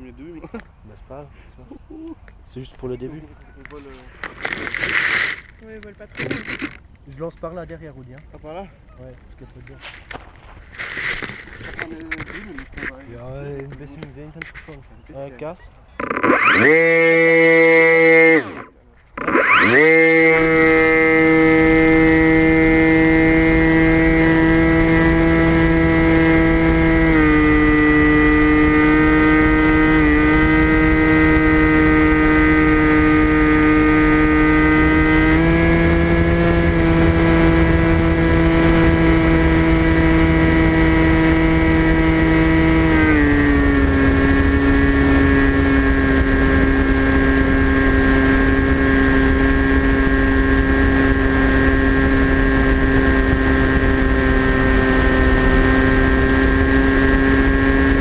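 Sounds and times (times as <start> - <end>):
electric motor and propeller whining: 16.0 - 58.0
wind rumble: 20.6 - 58.0.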